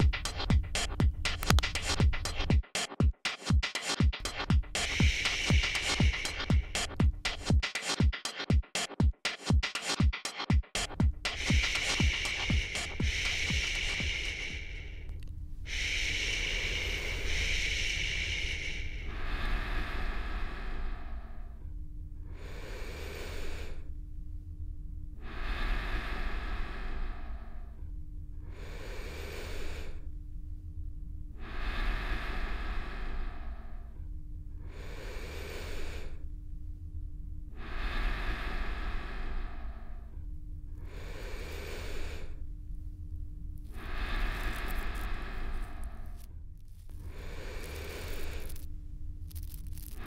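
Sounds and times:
steady low rumble: 0.0s - 2.6s, 4.1s - 7.6s, 10.8s - 50.0s
slowed breathing: 4.2s - 8.4s, 10.7s - 50.0s
faint held hum: 11.2s - 50.0s.

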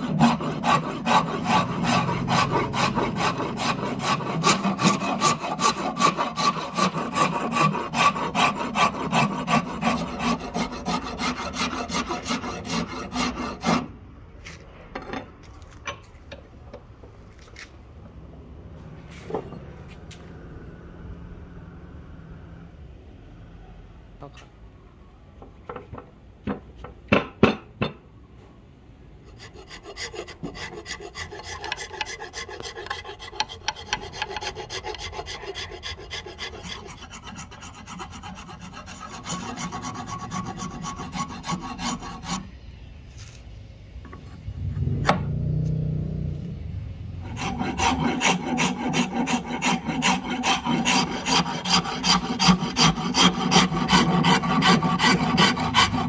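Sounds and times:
file scraping wooden handle: 0.0s - 13.9s, 29.2s - 42.4s, 47.2s - 56.0s.

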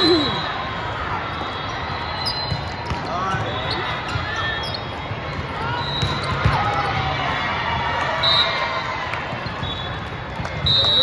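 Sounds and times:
voices in a gym: 0.0s - 11.0s
basketball bouncing on court: 5.2s - 7.1s.

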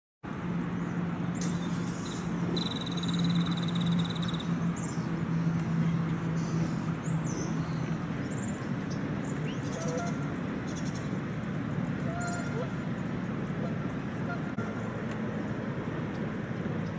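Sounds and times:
rumbling background noise: 0.3s - 16.9s
short high bird chirps: 1.4s - 4.5s.

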